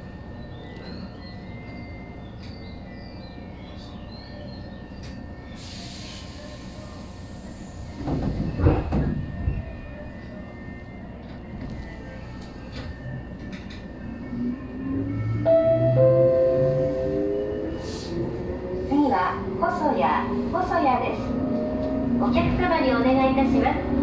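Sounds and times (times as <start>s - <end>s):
train low rumble: 0.0s - 24.0s
air hiss: 5.6s - 8.0s
train motor hum rising in pitch: 13.0s - 22.7s.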